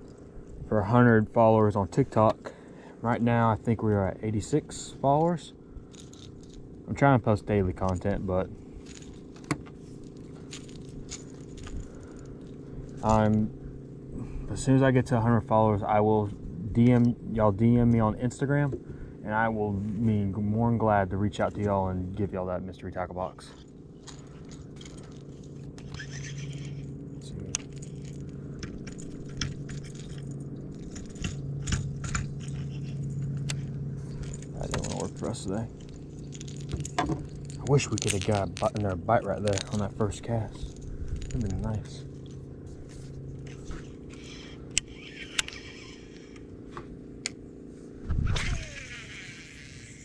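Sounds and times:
steady low hum: 0:00.0 - 0:50.0
fishing reel being cranked: 0:05.9 - 0:06.7, 0:08.8 - 0:13.4, 0:23.6 - 0:42.4, 0:43.0 - 0:46.7, 0:48.2 - 0:50.0
fishing reel clicks: 0:24.0 - 0:26.9, 0:43.4 - 0:46.5, 0:48.3 - 0:50.0.

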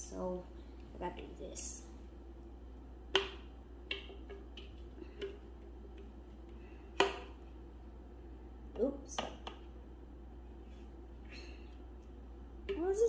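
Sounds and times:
utensil tapping a mixing bowl: 0:03.1 - 0:07.4.

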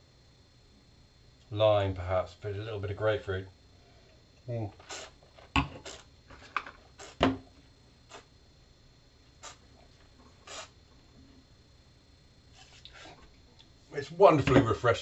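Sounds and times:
mouth slurping: 0:04.8 - 0:05.2, 0:05.8 - 0:06.1, 0:07.0 - 0:07.2, 0:08.1 - 0:08.3, 0:09.4 - 0:09.6, 0:10.4 - 0:10.8.

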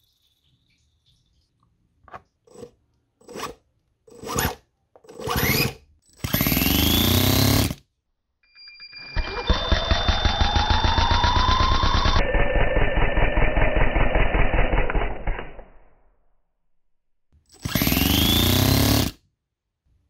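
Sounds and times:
small engine running: 0:05.2 - 0:07.8, 0:09.2 - 0:14.8, 0:17.6 - 0:19.2.

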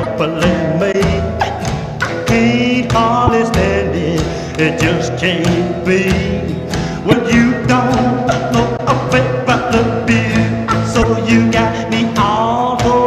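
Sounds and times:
person singing: 0:00.0 - 0:13.0
steady drum beat: 0:03.0 - 0:04.6.

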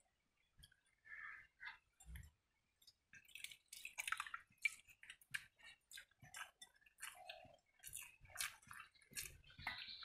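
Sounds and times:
wet squishes of rice: 0:00.0 - 0:10.0
chewing: 0:03.2 - 0:10.0.

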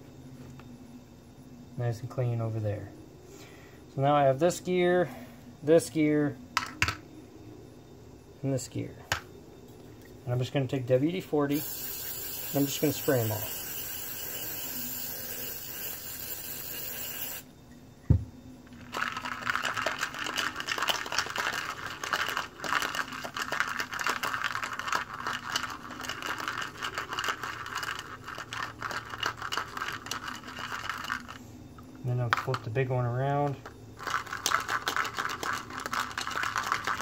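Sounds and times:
aerosol can spraying: 0:11.5 - 0:17.4
metal parts rattling in a cup: 0:11.6 - 0:17.4, 0:18.8 - 0:31.4, 0:33.5 - 0:37.0
knock: 0:18.1 - 0:18.3.

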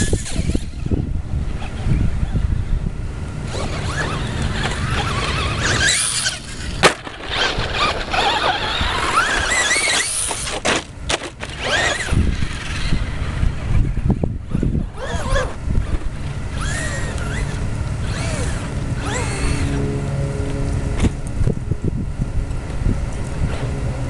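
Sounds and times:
wind rumbling on microphone: 0:00.0 - 0:10.0, 0:11.6 - 0:24.0
electric motor and gears whining: 0:00.0 - 0:24.0.

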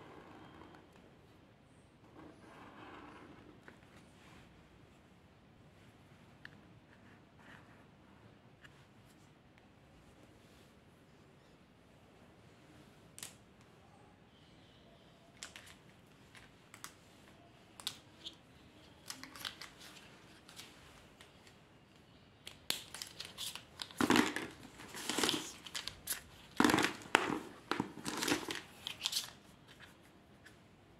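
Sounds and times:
plastic marker pens clattering: 0:15.3 - 0:17.0, 0:17.8 - 0:20.7, 0:22.5 - 0:30.0.

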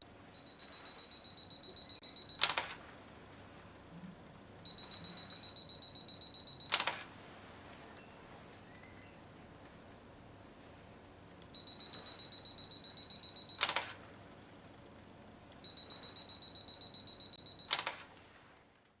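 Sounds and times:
camera self-timer beeping: 0:00.3 - 0:02.8, 0:04.6 - 0:07.1, 0:11.5 - 0:14.0, 0:15.6 - 0:18.0
camera shutter click: 0:02.4 - 0:02.8, 0:06.7 - 0:07.1, 0:13.6 - 0:14.0, 0:17.7 - 0:18.1.

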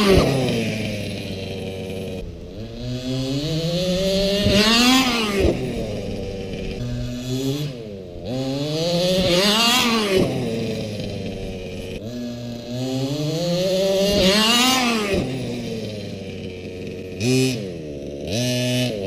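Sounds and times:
electric motor whining: 0:00.0 - 0:19.0.

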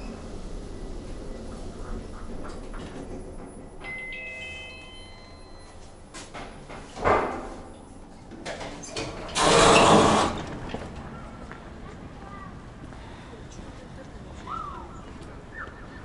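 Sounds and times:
lift doors sliding open: 0:00.0 - 0:11.1
electronic lift chime: 0:03.8 - 0:05.9.

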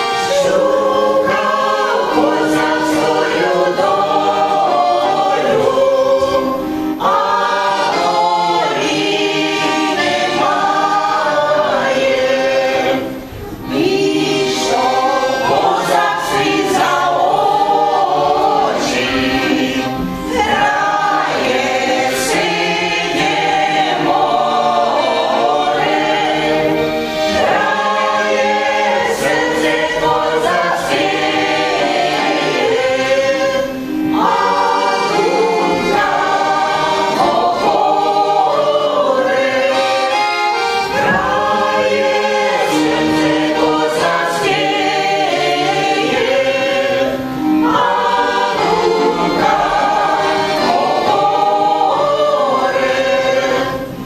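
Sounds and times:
accordion: 0:00.0 - 0:54.0
choir singing folk song: 0:00.0 - 0:54.0.

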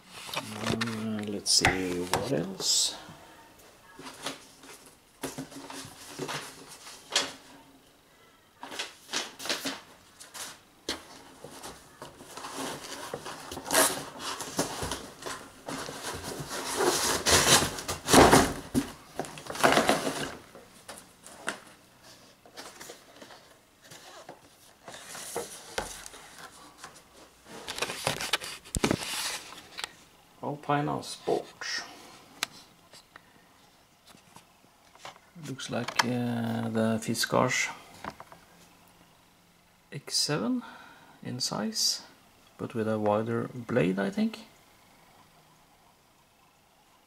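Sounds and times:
packaging rustling and crinkling: 0:04.0 - 0:07.5, 0:08.6 - 0:30.1.

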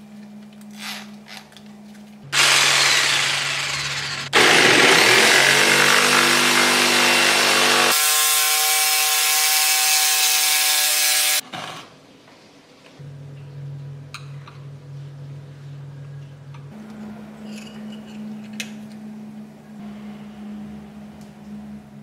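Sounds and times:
jigsaw sawing through board: 0:02.4 - 0:11.7
low hum: 0:13.0 - 0:22.0.

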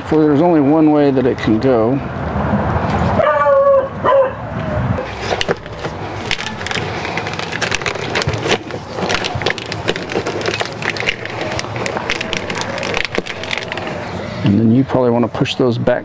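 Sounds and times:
plastic connectors clicking and rattling: 0:05.0 - 0:14.2.

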